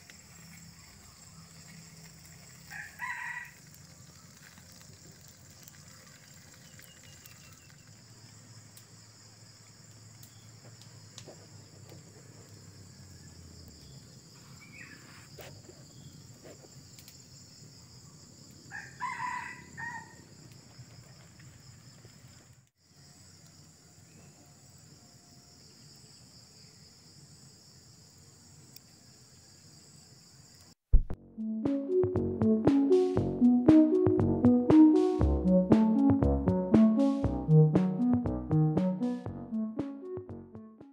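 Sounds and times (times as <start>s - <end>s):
wood fire popping: 0.0s - 9.0s, 9.6s - 12.7s
insects droning: 0.0s - 30.8s
rooster crowing: 2.6s - 3.7s, 18.7s - 20.3s.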